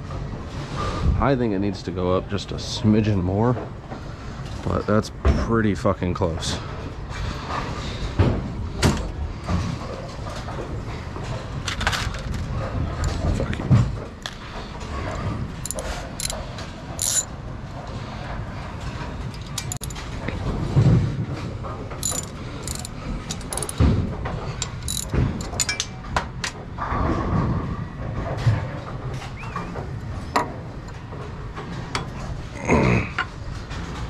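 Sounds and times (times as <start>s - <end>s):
machine rumble: 0.0s - 34.0s
metal clanks and clicks: 10.0s - 17.3s, 18.8s - 20.4s, 21.6s - 26.7s.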